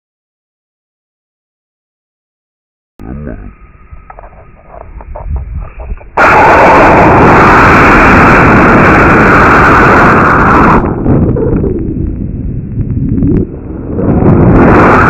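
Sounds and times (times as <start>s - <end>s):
rocket motor roaring: 3.0s - 12.3s
wind noise: 3.0s - 15.0s.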